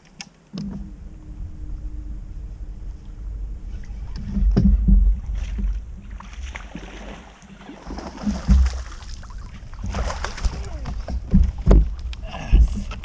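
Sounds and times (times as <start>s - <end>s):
wind rumbling on microphone: 0.0s - 13.0s
waves slapping boat hull: 3.8s - 13.0s.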